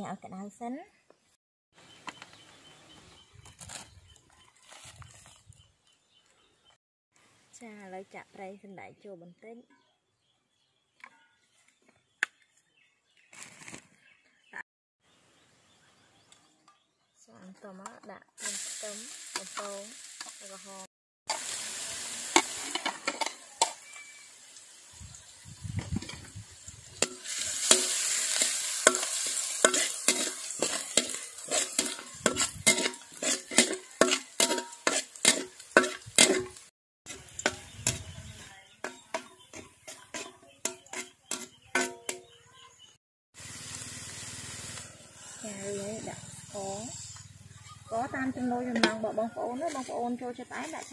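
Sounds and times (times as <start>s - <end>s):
metal spatula scraping and tapping wok: 17.8s - 20.4s, 22.2s - 24.2s, 26.0s - 26.3s, 26.9s - 42.4s, 46.6s - 50.9s
garlic sizzling in hot oil: 18.4s - 42.2s, 43.4s - 50.9s.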